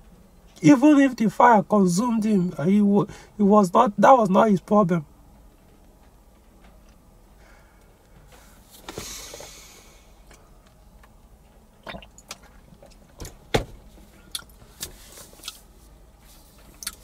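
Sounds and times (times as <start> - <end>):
person gulping and swallowing: 11.8 - 12.4.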